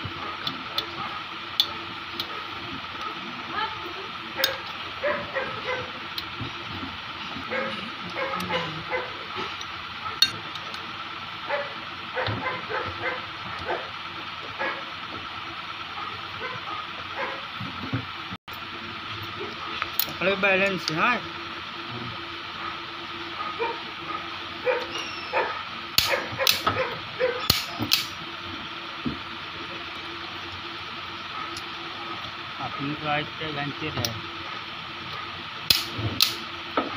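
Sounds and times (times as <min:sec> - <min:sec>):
dog whimpering and yipping: 0:24.7 - 0:25.5
sharp click: 0:26.0 - 0:26.7, 0:27.5 - 0:28.1, 0:35.7 - 0:36.4.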